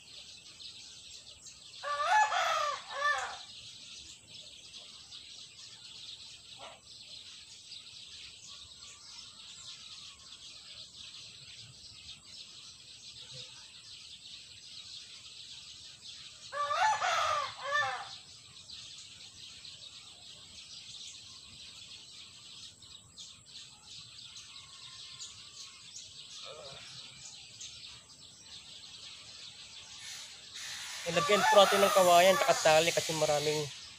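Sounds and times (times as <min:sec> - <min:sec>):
faint bird chirps: 0:00.0 - 0:33.9
rooster crowing: 0:01.8 - 0:03.5, 0:16.5 - 0:18.2, 0:30.6 - 0:33.6
steady high hiss: 0:29.9 - 0:33.9.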